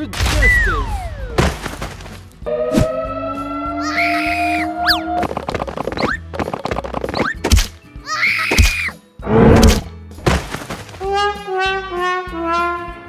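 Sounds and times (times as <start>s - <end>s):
falling run of musical notes: 2.4s - 5.4s
brief wail: 2.5s - 5.2s.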